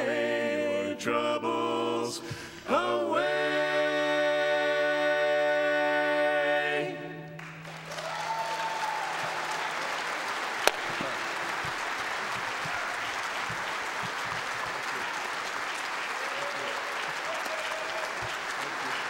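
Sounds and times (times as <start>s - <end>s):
a cappella quartet singing chord: 0.0s - 7.9s
audience applause: 7.4s - 19.0s.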